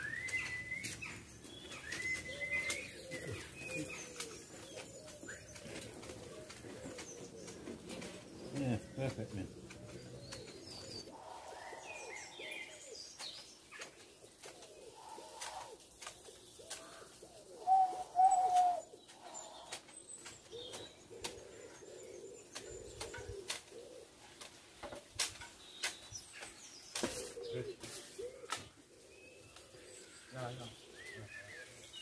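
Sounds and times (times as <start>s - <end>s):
pigeons cooing: 0.0s - 25.3s, 26.9s - 32.0s
small birds chirping: 0.0s - 32.0s
hedge shears snipping: 24.3s - 28.8s.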